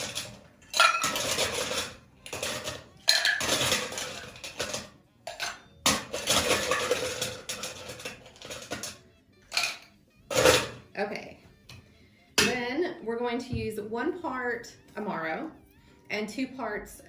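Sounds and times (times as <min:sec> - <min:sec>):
ice cubes clattering into metal tin: 0:00.0 - 0:10.8.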